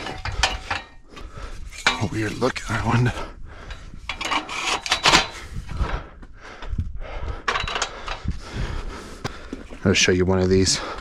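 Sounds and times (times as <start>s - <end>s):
metal ladder scraping: 0.0s - 3.0s, 4.1s - 5.6s.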